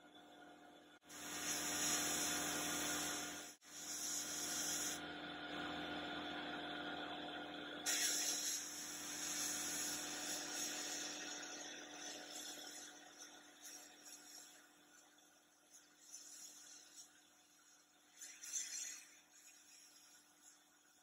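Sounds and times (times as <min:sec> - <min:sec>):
steady hum: 0:01.1 - 0:17.9
blast gun hissing: 0:07.9 - 0:11.2.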